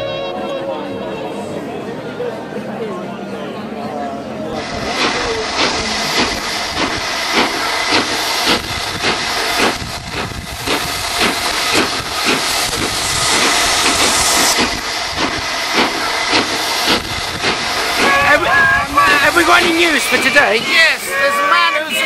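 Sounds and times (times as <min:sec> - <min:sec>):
steam locomotive hissing steam: 0:04.6 - 0:22.0
regular chuffing beat: 0:04.9 - 0:21.1.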